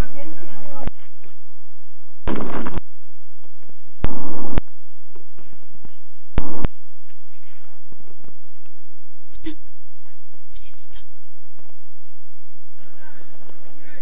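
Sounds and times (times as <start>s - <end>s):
static noise bursts: 4.1s - 4.6s, 6.4s - 6.7s.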